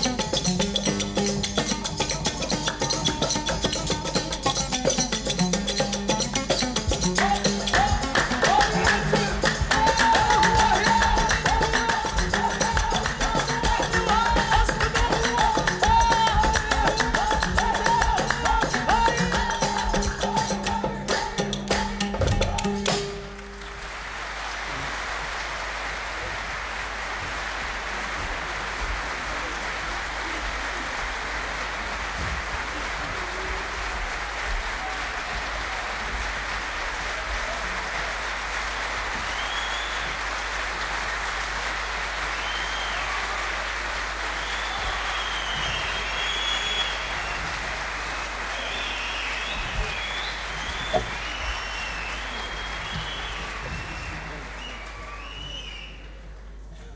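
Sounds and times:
audience applauding: 6.4s - 56.6s
high calls or whistles: 44.4s - 47.5s, 48.6s - 56.2s.

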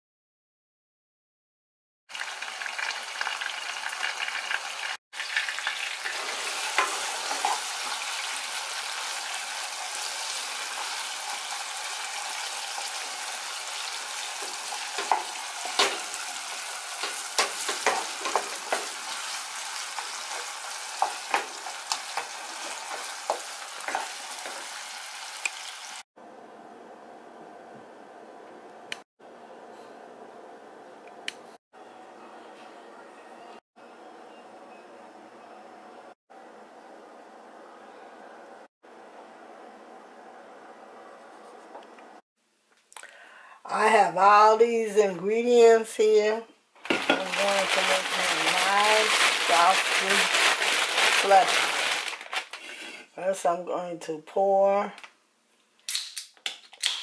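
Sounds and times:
meat sizzling in a saucepan: 2.1s - 26.1s, 46.9s - 51.8s
wooden spatula scraping: 6.1s - 8.0s, 17.0s - 25.0s, 46.9s - 53.1s.

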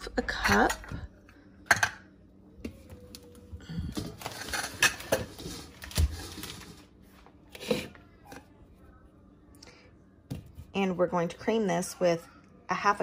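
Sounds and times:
plastic bag rustling: 3.8s - 7.2s.

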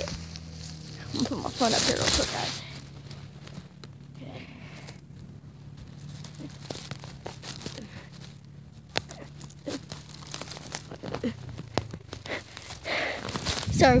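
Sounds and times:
faint low hum: 0.0s - 14.0s
phone handling rustling and scraping: 4.9s - 13.7s.

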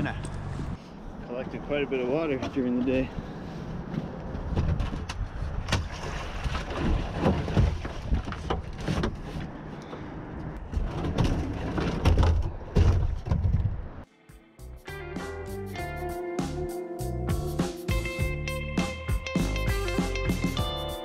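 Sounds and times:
kayak hull knocking and scraping: 4.0s - 9.6s, 10.6s - 13.8s.

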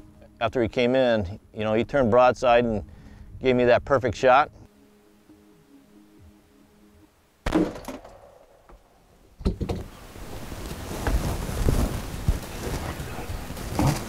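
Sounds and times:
revolver gunshot: 7.4s - 8.6s
rustling with low thumps: 9.2s - 14.0s.

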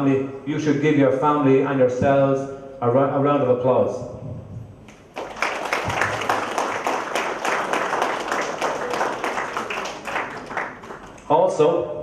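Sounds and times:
audience applauding: 5.1s - 11.3s.

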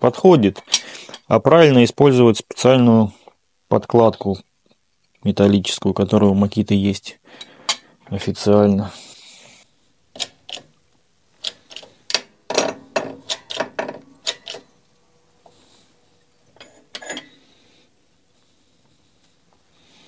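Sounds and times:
shop press metallic clicks: 11.4s - 14.7s.

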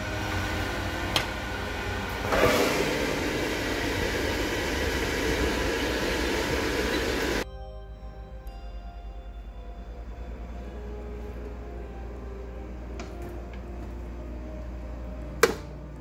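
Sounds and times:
air fryer fan rushing: 0.0s - 7.4s.

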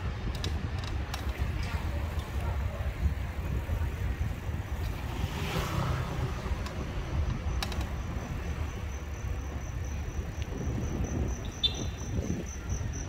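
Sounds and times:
wind and road noise: 0.0s - 13.0s
motor vehicle passing: 4.6s - 12.0s.

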